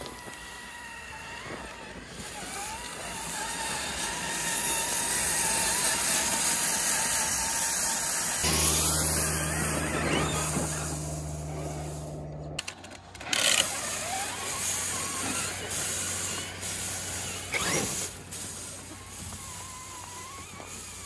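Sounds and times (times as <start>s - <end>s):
rc truck motor whine: 0.0s - 21.0s
tyres hissing on dirt: 0.2s - 12.5s, 13.6s - 21.0s
low steady hum: 8.4s - 12.6s.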